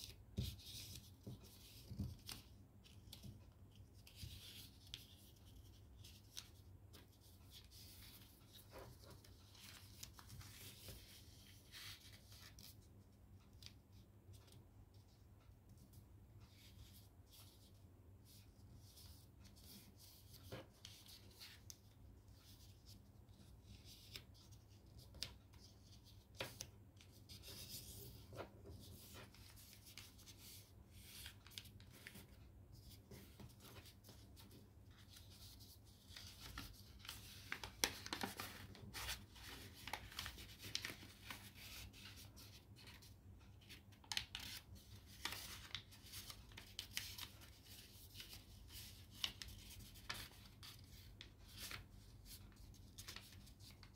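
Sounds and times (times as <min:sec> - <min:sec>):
paper rustling and crinkling: 0:07.4 - 0:12.8, 0:23.9 - 0:53.9.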